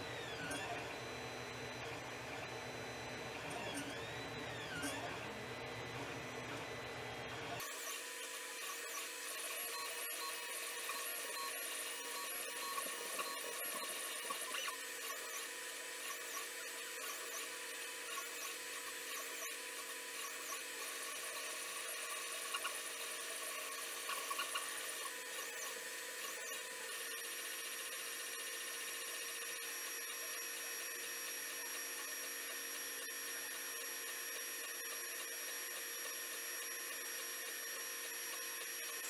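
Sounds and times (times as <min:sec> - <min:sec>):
stepper motors whining: 0:00.1 - 0:05.4, 0:07.3 - 0:27.1.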